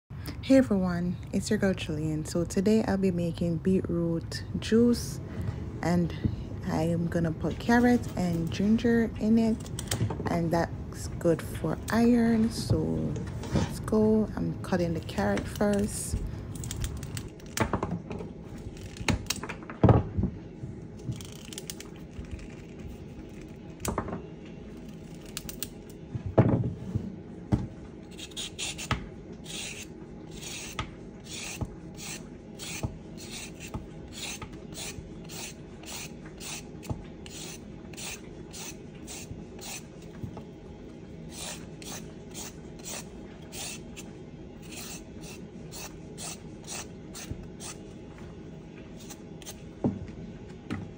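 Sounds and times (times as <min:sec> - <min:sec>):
peeler scraping carrot: 0:28.1 - 0:39.9, 0:41.3 - 0:47.8, 0:49.0 - 0:49.6.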